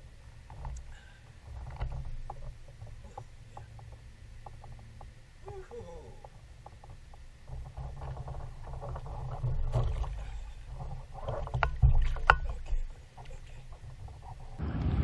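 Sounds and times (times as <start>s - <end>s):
low rumble: 7.2s - 15.0s.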